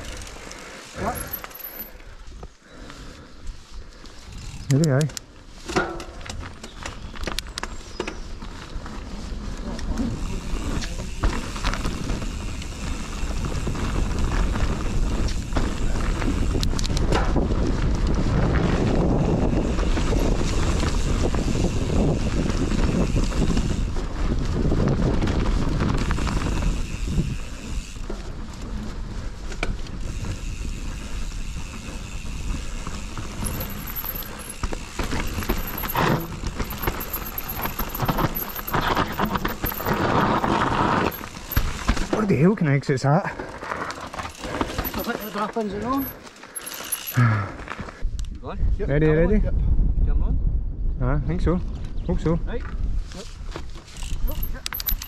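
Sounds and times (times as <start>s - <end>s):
bike rattling over bumps: 0.0s - 48.0s, 52.6s - 55.0s
bike tyres rumbling on dirt: 0.0s - 48.1s
wind buffeting microphone: 8.1s - 41.9s, 47.2s - 54.5s.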